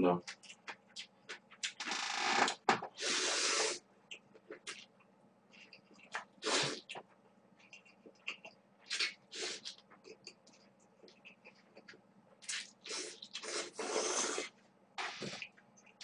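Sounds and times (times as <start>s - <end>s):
man slurping noodles: 3.0s - 3.8s, 12.9s - 15.2s.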